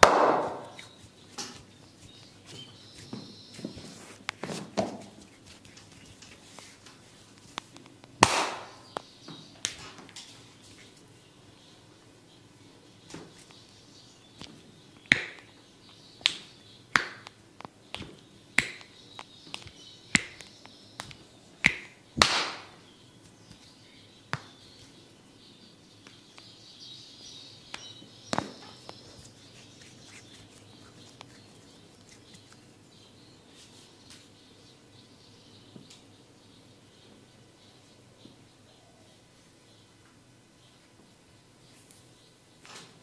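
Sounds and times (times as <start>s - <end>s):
sharp snaps during massage: 0.0s - 2.3s, 3.0s - 9.9s, 14.4s - 24.9s, 27.7s - 32.7s.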